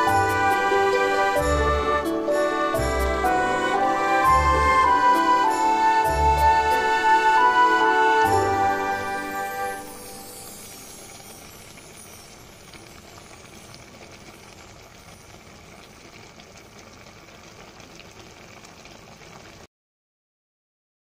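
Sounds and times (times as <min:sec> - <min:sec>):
liquid simmering with bubbling hiss: 0:08.8 - 0:19.7.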